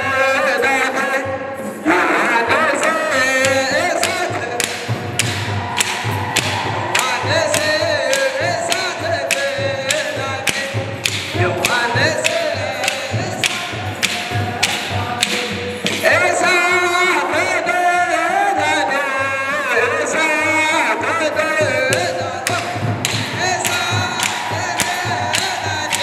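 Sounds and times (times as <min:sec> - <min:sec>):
men's choir chanting in unison: 0:00.0 - 0:26.0
even beat of sharp strikes: 0:02.8 - 0:17.0, 0:21.6 - 0:26.0.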